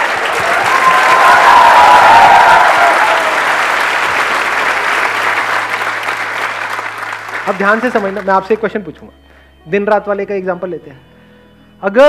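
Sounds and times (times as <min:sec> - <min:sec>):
audience applauding and cheering: 0:00.0 - 0:08.6.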